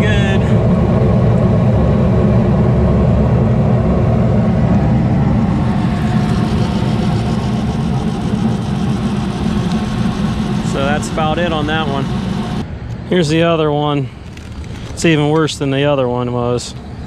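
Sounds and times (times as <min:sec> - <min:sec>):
motor and blower running: 0:00.0 - 0:12.7
burners rumbling: 0:00.0 - 0:16.3.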